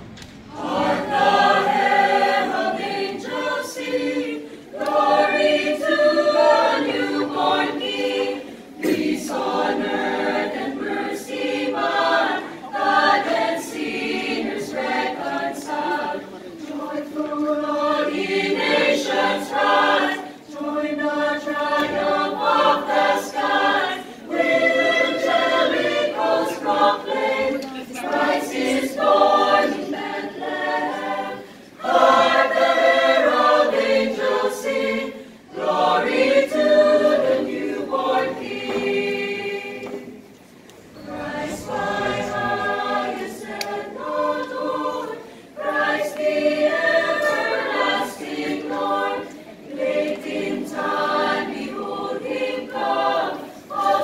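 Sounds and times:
mixed choir singing a cappella: 0.0s - 54.0s
singers breathing: 45.2s - 45.6s.

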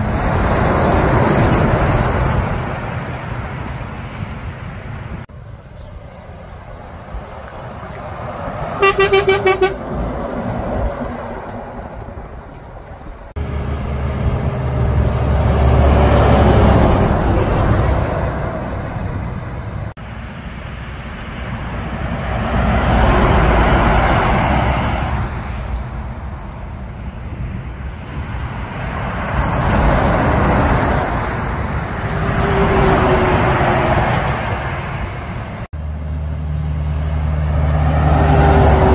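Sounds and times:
heavy trucks passing: 0.0s - 38.9s
truck horn short toots: 8.8s - 9.9s.

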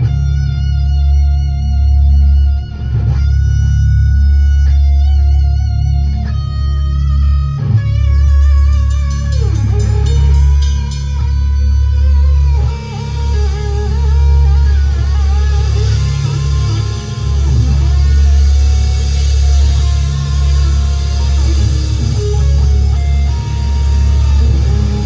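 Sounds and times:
deep steady bass: 0.0s - 25.0s
electric guitar long notes: 0.0s - 25.0s
high drum kit ticks: 7.7s - 25.0s.

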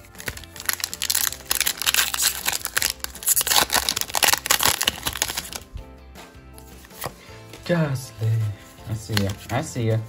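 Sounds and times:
foil pack crinkling and tearing: 0.0s - 5.7s.

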